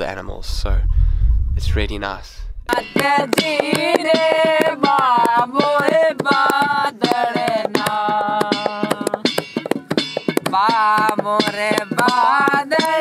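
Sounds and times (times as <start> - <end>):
fast percussion beat: 2.7 - 13.0.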